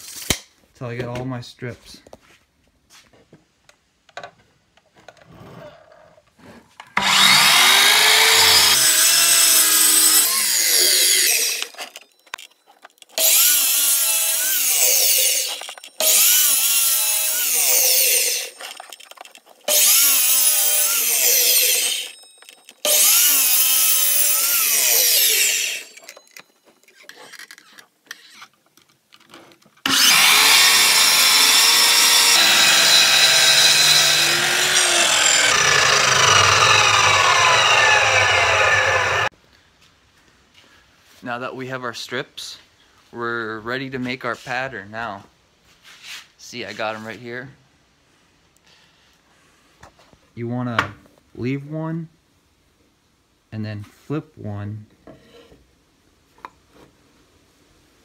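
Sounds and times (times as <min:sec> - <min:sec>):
miter saw cutting wood: 0:07.0 - 0:12.0, 0:13.2 - 0:18.9, 0:19.7 - 0:22.2, 0:22.8 - 0:26.2, 0:29.8 - 0:39.3.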